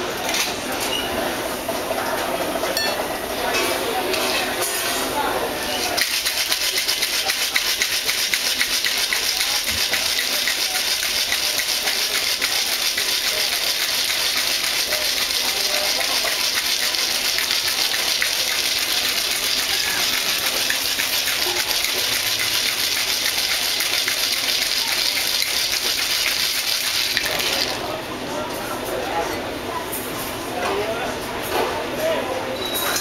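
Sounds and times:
ice rattling in cocktail shaker: 5.9 - 27.9.

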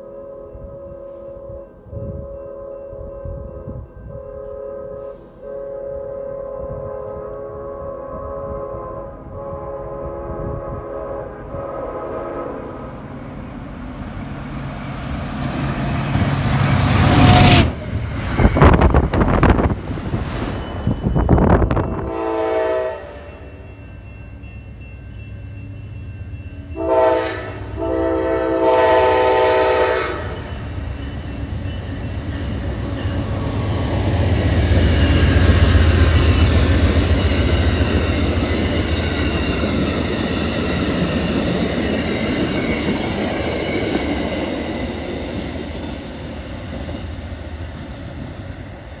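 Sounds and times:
train horn blasts: 0.0 - 13.0, 16.7 - 17.8, 21.6 - 23.5, 26.7 - 30.6.

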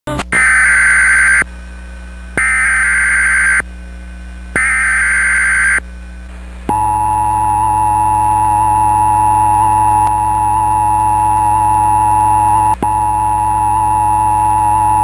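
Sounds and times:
low hum: 0.1 - 15.0
raspy data tone bursts: 0.4 - 1.4, 2.4 - 3.6, 4.6 - 5.8, 6.7 - 15.0
steady single-tone alarm: 0.4 - 1.5, 2.4 - 3.7, 4.6 - 5.8, 6.7 - 15.0.

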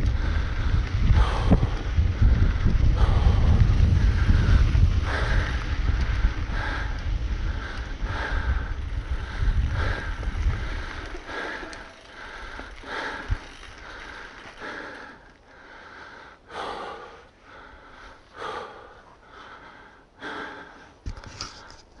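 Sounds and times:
wind rumbling on microphone: 0.0 - 15.3
person breathing hard: 0.0 - 21.8.

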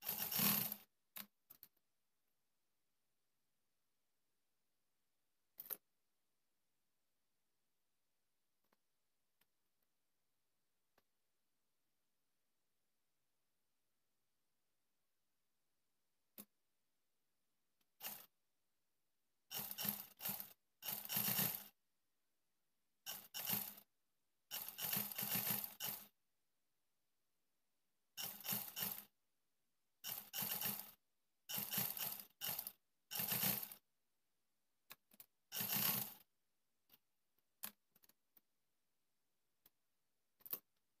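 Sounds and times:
sewing machine stitching: 0.0 - 1.3, 18.0 - 18.3, 19.5 - 21.8, 23.0 - 23.9, 24.5 - 26.2, 28.2 - 29.2, 30.0 - 33.8, 35.5 - 36.3.

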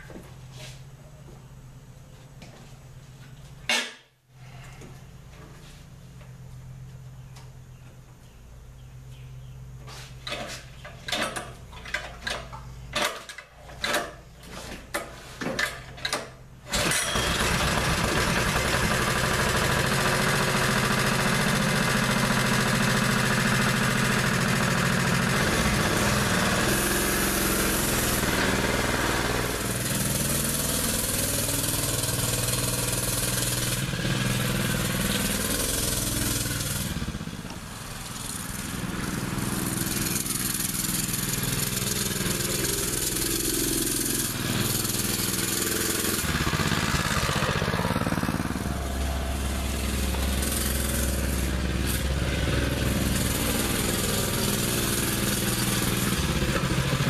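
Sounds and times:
small engine running: 16.7 - 57.0.

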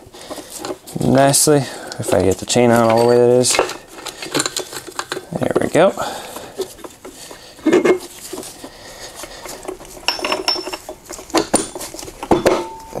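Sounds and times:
drive chain clinking and rattling: 1.6 - 5.3, 9.9 - 13.0
heavy metal clunk: 10.1 - 13.0.

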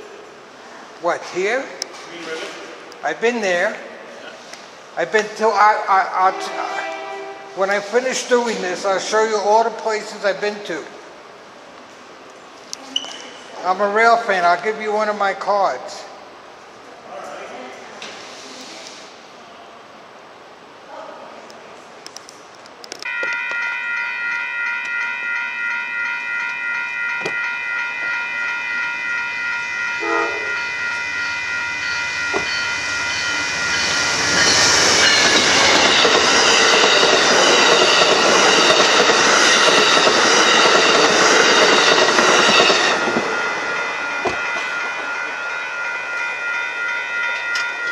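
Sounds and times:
railroad crossing bell ringing: 23.1 - 47.9
train wheels rushing clatter: 32.3 - 45.6.

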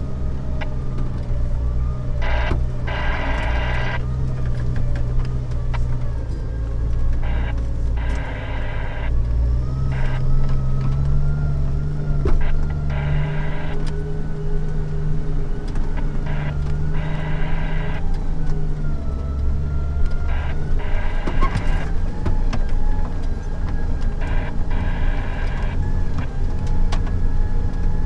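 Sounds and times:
car engine running at low revs: 0.0 - 28.0
high buzzing: 2.2 - 4.0, 7.2 - 9.1, 16.0 - 18.1.

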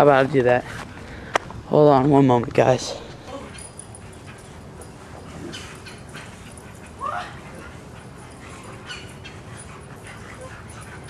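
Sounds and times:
dog whining: 3.2 - 11.0.

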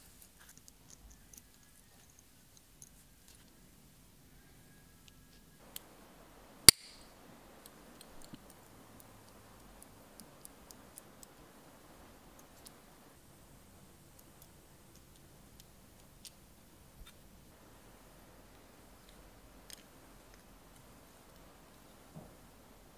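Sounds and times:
faint handling rustle: 0.0 - 3.7
sharp metallic click with ring: 6.7 - 7.1.

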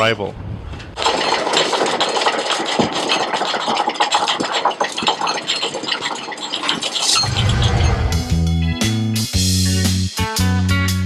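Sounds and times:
anchor chain rattling: 1.0 - 7.7.

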